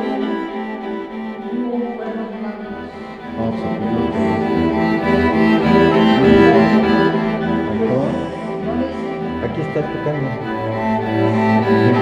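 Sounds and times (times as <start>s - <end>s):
bowed strings music: 0.0s - 12.0s.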